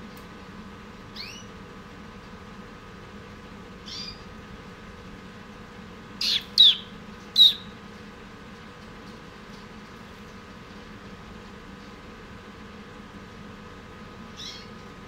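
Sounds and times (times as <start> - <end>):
faint steady hum: 0.0 - 15.0
songbird chirping: 6.2 - 7.7.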